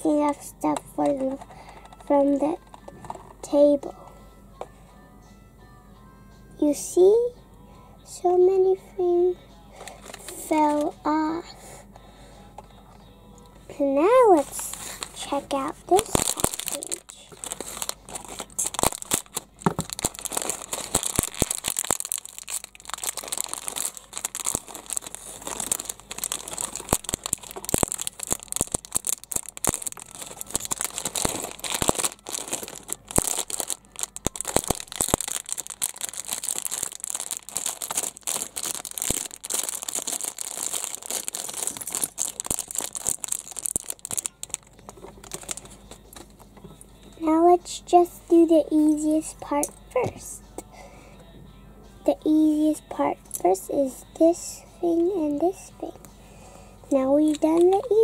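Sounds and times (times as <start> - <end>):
plastic bag crinkling: 9.8 - 10.8, 14.1 - 46.3, 57.2 - 58.0
small plastic pieces clicking: 16.0 - 45.7.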